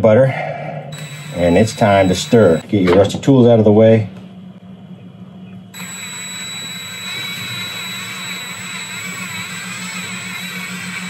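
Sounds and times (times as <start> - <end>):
cordless drill whining: 0.9 - 2.6, 5.8 - 11.0.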